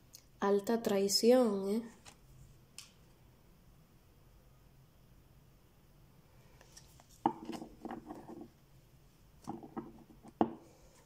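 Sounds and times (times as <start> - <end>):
cards tapping on wooden table: 7.2 - 8.5, 9.4 - 10.6
knocks on tabletop: 9.5 - 10.6.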